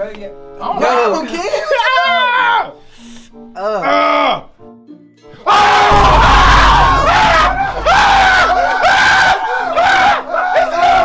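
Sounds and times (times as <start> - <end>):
young men screaming and yelling: 1.5 - 2.8, 5.4 - 11.0
low rumble: 5.9 - 9.4.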